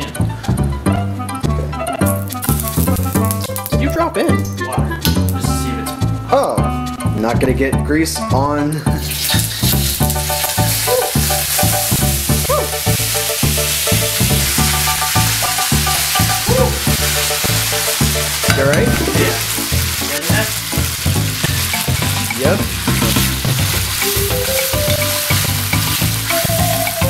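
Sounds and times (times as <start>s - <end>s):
background music with bassline: 0.0s - 27.0s
chicken sizzling in hot oil: 2.1s - 3.8s, 8.9s - 27.0s.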